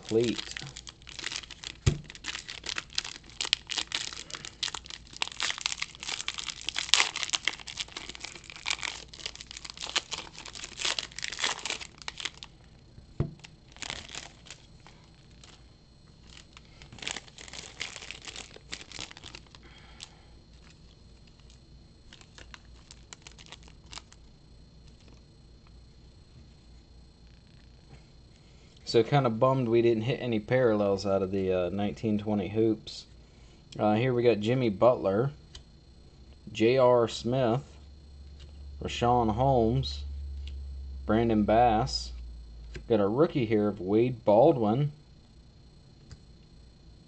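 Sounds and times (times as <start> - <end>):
plastic wrapper crinkling: 0.0 - 25.2.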